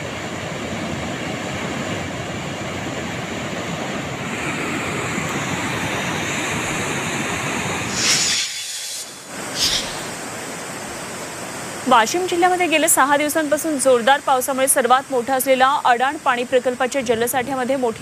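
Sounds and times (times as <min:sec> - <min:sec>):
water rushing through spillway: 0:02.8 - 0:18.0
high hiss: 0:05.4 - 0:11.8.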